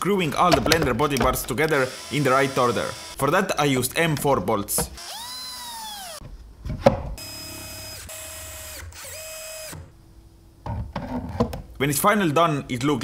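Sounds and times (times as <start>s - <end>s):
cordless drill whining: 1.7s - 3.2s, 5.0s - 6.2s, 7.2s - 9.9s.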